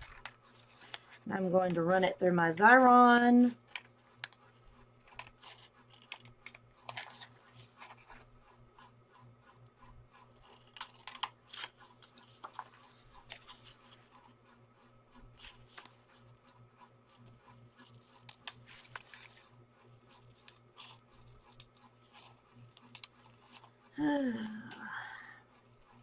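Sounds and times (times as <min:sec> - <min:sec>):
paper rustling: 0:00.0 - 0:01.8, 0:05.1 - 0:08.3, 0:10.4 - 0:14.4, 0:17.2 - 0:23.7
scissors snipping paper: 0:02.7 - 0:08.2, 0:10.2 - 0:14.4, 0:16.8 - 0:23.7.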